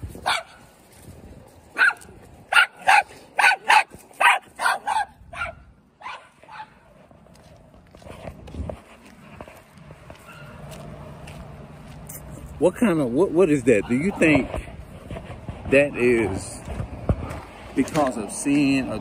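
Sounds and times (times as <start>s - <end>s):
small dog barking: 0.2s - 0.7s, 1.7s - 6.8s.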